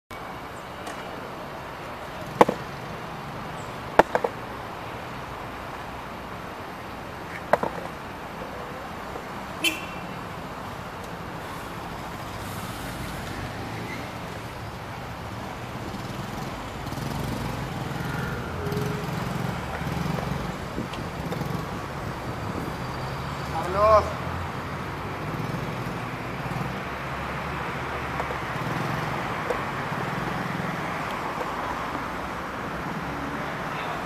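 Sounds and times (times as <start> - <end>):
street traffic: 0.1 - 34.0
skateboard clacking on stone: 3.9 - 4.5, 7.3 - 9.3.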